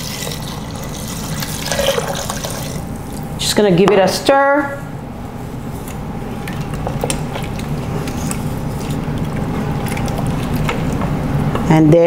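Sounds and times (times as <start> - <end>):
liquid sloshing: 0.0 - 3.2, 6.3 - 11.4.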